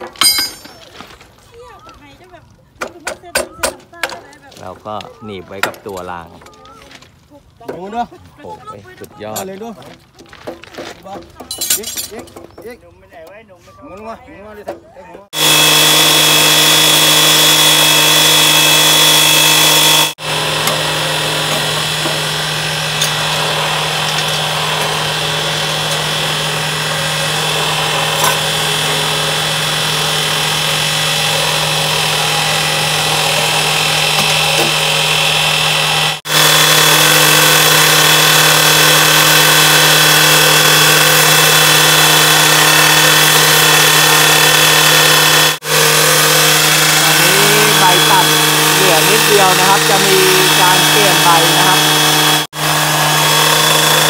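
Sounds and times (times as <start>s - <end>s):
rail cutter grinding steel: 0.0s - 0.9s, 8.6s - 9.9s, 15.2s - 54.0s.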